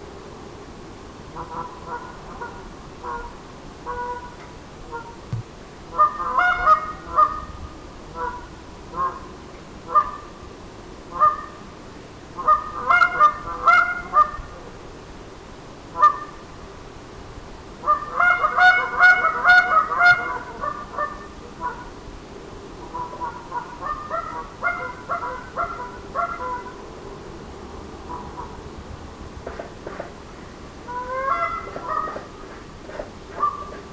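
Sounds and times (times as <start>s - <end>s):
goose call honks and clucks: 1.4s - 3.3s, 3.9s - 5.2s, 5.9s - 7.5s, 8.2s - 9.2s, 9.9s - 10.2s, 11.1s - 11.6s, 12.4s - 14.4s, 16.0s - 16.4s, 17.8s - 21.9s, 22.9s - 26.8s, 30.9s - 32.3s, 32.9s - 33.9s.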